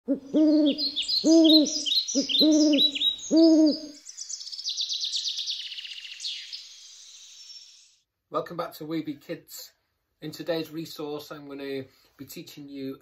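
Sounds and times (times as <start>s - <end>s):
low bird hoots: 0.1s - 4.0s
high bird chirping: 0.1s - 8.0s.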